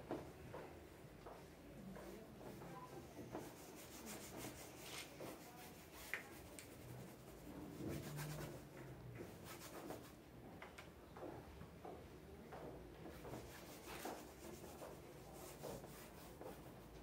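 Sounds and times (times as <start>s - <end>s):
paint scrubbed onto canvas: 3.3s - 8.7s, 13.2s - 16.8s.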